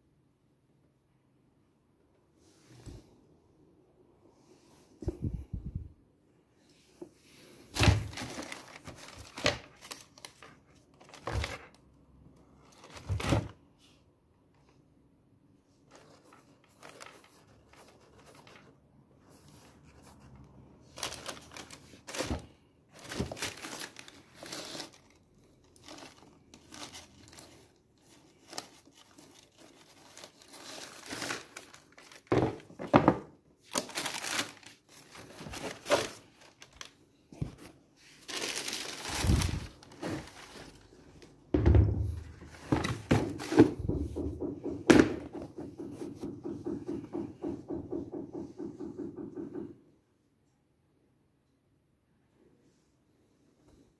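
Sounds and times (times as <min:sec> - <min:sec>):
tissue paper crinkling: 0:07.7 - 0:11.7, 0:15.9 - 0:18.7, 0:20.9 - 0:32.7, 0:33.6 - 0:41.2
soft thunks of shoes and box: 0:41.5 - 0:46.7.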